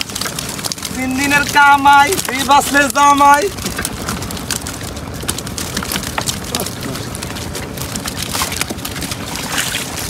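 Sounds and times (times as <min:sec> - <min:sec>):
fish slapping on wooden deck: 0:00.0 - 0:10.0
water splashing: 0:00.0 - 0:10.0.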